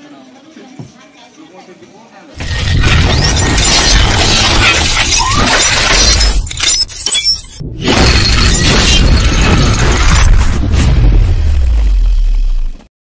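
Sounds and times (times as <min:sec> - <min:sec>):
gunfire blasts and crackle: 0:02.4 - 0:06.5, 0:07.7 - 0:12.8
metallic clattering and shattering: 0:02.4 - 0:10.7.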